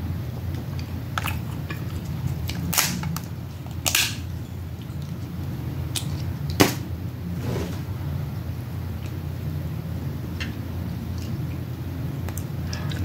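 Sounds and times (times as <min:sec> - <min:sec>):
steady low hum: 0:00.0 - 0:13.0
crab shells cracking: 0:01.2 - 0:04.3.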